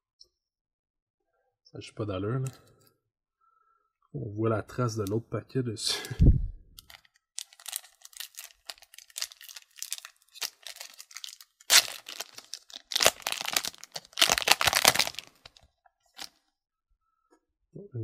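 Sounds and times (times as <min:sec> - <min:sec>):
cards rustling: 0:06.8 - 0:16.4
foil wrapper crinkling and tearing: 0:06.8 - 0:16.4.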